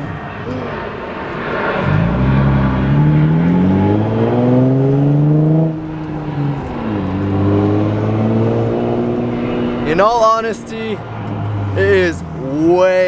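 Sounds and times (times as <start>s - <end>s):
car engine accelerating loud exhaust: 0.0s - 12.8s.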